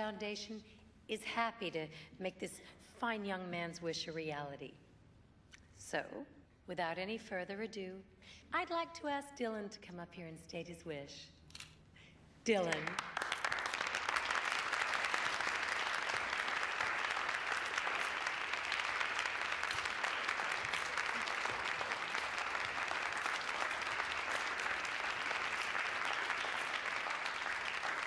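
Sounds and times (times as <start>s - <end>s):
audience applauding: 12.7s - 28.0s.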